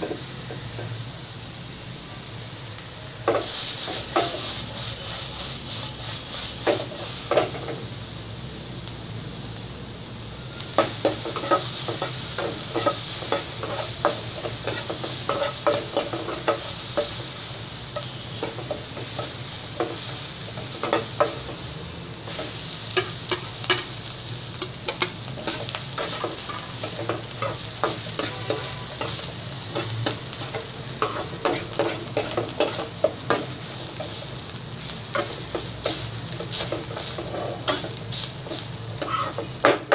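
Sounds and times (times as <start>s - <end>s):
food sizzling in a wok: 0.0s - 39.9s
metal spatula scraping a pan: 10.8s - 17.2s, 24.9s - 34.2s, 35.1s - 39.8s.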